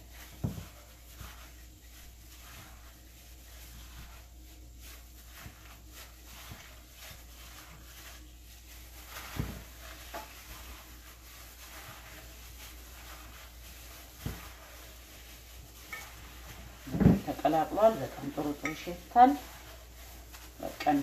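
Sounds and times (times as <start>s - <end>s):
hands squishing raw meat: 0.0s - 21.0s.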